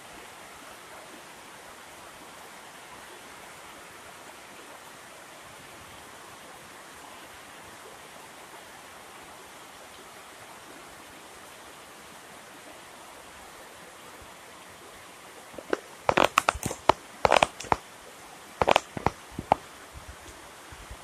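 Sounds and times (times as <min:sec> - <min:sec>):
rain on vegetation and water: 0:00.0 - 0:21.0
sharp loud clicks and knocks: 0:15.6 - 0:17.8, 0:18.6 - 0:19.6.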